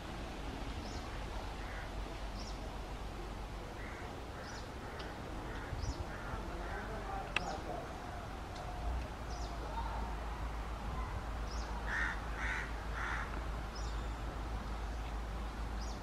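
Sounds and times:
bird harsh calls: 0.8 - 2.6, 3.8 - 7.2, 11.5 - 14.2.

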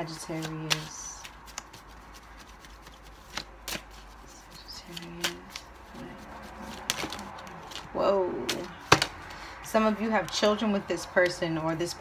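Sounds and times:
cards being shuffled: 0.0 - 9.3.

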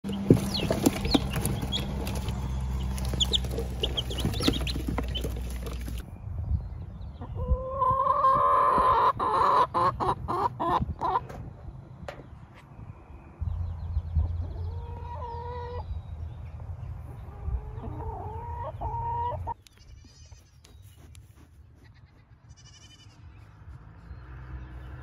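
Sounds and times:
chicks peeping: 0.0 - 6.0, 7.2 - 11.5, 13.6 - 19.9
adult chicken calling and clucking: 0.1 - 6.0, 7.2 - 11.5, 14.1 - 16.1, 17.0 - 21.0.

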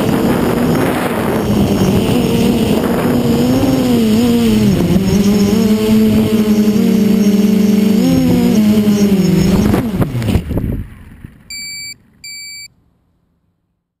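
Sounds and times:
drone motors whining: 0.0 - 12.0
short electronic beeps: 11.5 - 12.7.

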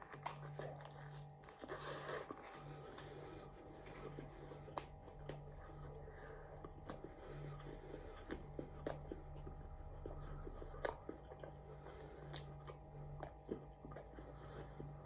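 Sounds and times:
low steady hum: 0.0 - 15.0
person chewing with wet mouth clicks: 4.7 - 15.0.

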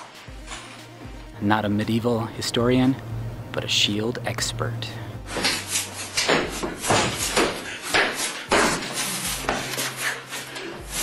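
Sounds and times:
steady low hum: 0.3 - 7.8.

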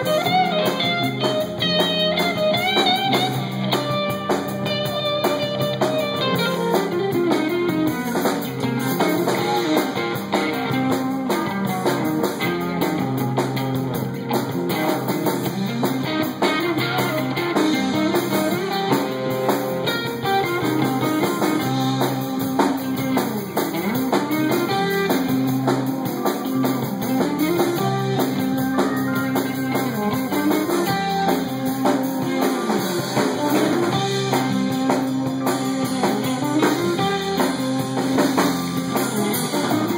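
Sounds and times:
drum kit: 0.0 - 39.9
electric guitar with bending notes: 0.0 - 39.9.

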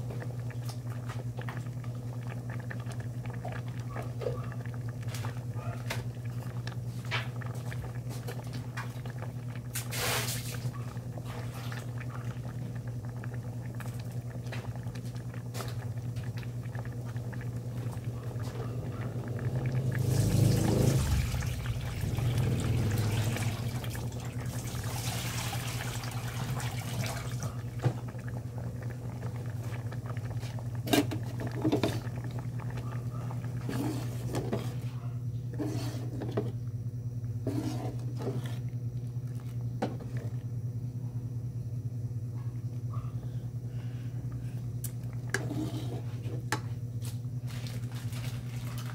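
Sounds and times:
soup bubbling in pot: 0.0 - 48.9
low hum: 12.0 - 24.6.

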